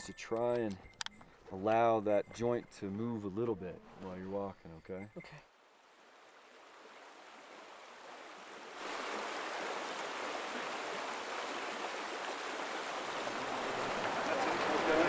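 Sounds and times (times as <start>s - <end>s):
stream rushing over rocks: 6.0s - 15.0s.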